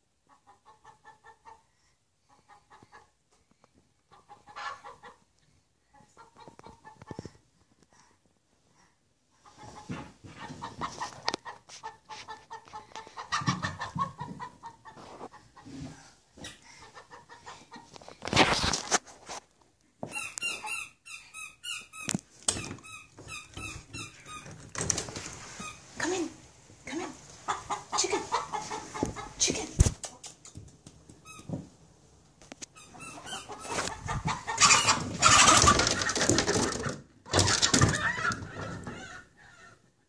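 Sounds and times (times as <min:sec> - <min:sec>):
chicken squawking and clucking: 0:00.2 - 0:01.7, 0:04.1 - 0:05.3, 0:05.9 - 0:07.2, 0:09.4 - 0:19.0, 0:20.1 - 0:26.0, 0:27.0 - 0:30.3, 0:32.6 - 0:40.0.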